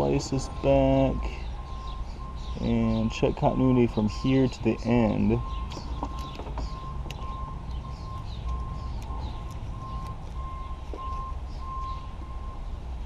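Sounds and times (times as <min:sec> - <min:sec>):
electronic beeping: 0:04.1 - 0:12.6.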